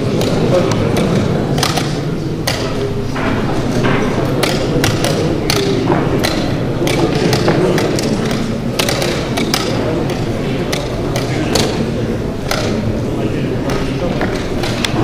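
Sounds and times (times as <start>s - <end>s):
murmur of crowd: 0.0s - 15.0s
chess pieces knocking on boards: 0.1s - 12.9s.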